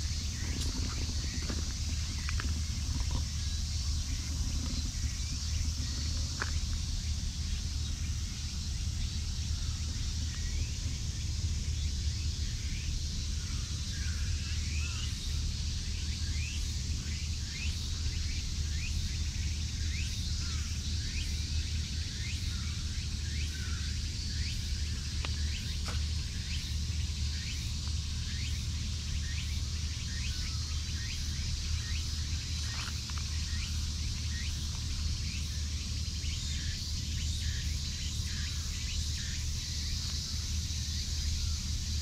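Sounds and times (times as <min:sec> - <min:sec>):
insect hiss: 0:00.0 - 0:42.0
low steady rumble: 0:00.0 - 0:42.0
small birds chirping: 0:00.0 - 0:42.0.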